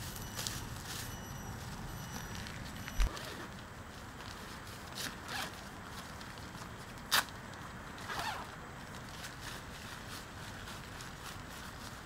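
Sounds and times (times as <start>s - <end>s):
tent zipper rasping: 5.0s - 5.6s, 8.0s - 8.6s.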